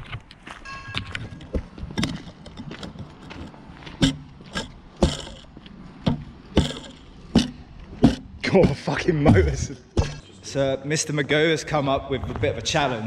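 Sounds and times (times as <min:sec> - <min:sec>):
sharp footsteps: 0:00.0 - 0:10.3.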